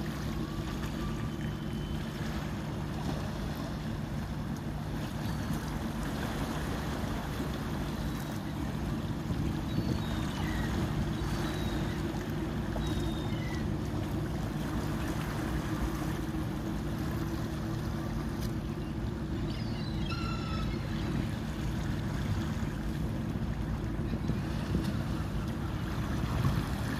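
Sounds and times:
boat engine droning: 0.0 - 26.9
short high bird calls: 19.4 - 21.2.

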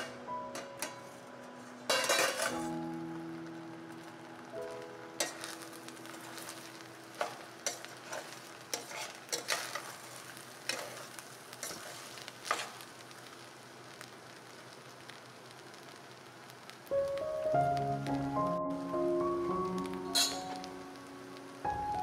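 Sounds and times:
faint steady hiss: 0.0 - 22.0
spoon scraping rice in pot: 7.7 - 10.0.

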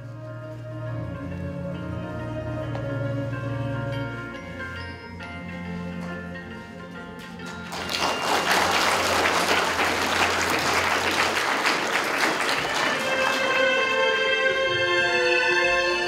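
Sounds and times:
soft music with long notes: 0.0 - 16.0
audience applause: 7.5 - 13.8.

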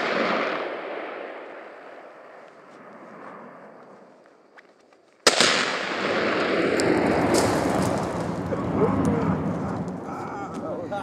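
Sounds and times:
rifle shot: 0.0 - 2.4, 5.2 - 8.4.

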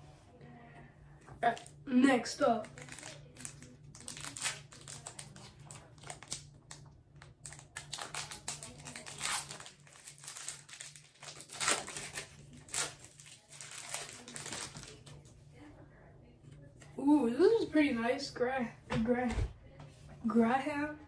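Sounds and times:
wrapper crinkling and tearing: 2.6 - 15.3.

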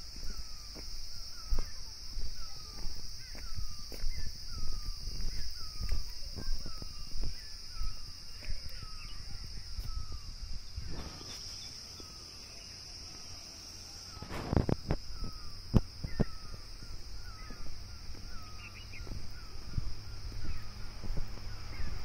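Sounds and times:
footsteps crunching on ballast: 0.0 - 10.1, 14.4 - 21.3
high insect drone: 0.0 - 22.0.

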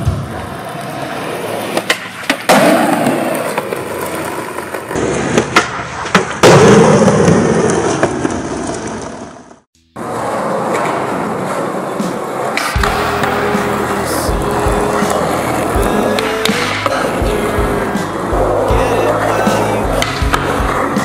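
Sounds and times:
skateboard wheels rolling on concrete: 0.0 - 21.0
skateboard clacking on landing: 1.7 - 6.8.

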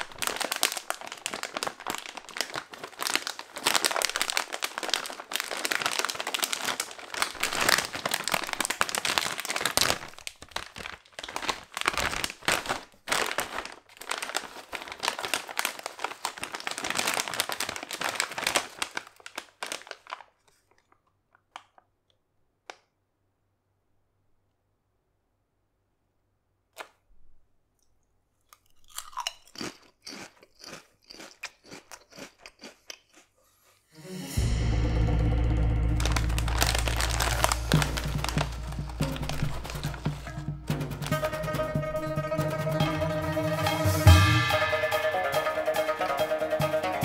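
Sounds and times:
chips shifting in bag: 0.0 - 21.0, 35.9 - 41.3
chip bag crinkling: 0.0 - 22.0, 28.4 - 33.8, 35.7 - 42.4.

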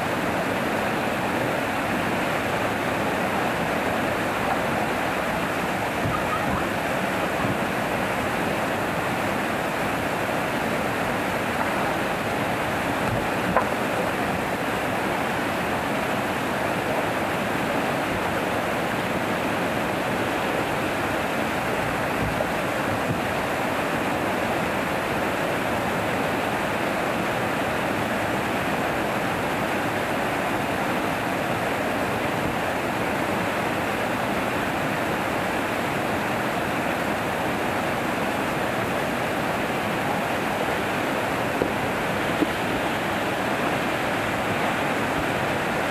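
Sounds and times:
water rushing over weir: 0.0 - 45.9.

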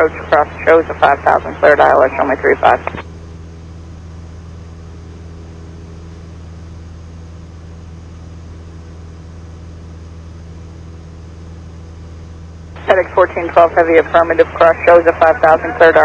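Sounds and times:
light aircraft engine droning: 0.0 - 16.0.

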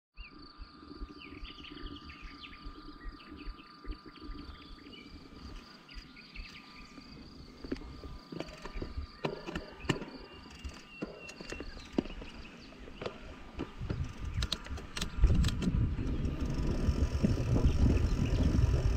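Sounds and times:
insects chirping: 0.2 - 18.9
low wind rumble: 0.3 - 18.9
sharp clicks and knocks: 7.7 - 12.4, 13.0 - 16.4.

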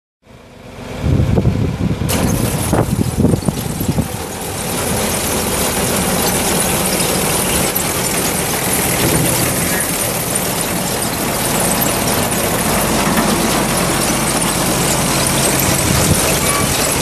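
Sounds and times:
tractor running: 0.3 - 17.0
uneven mechanical knocking: 2.1 - 11.0
baler clattering and squealing: 2.1 - 17.0.

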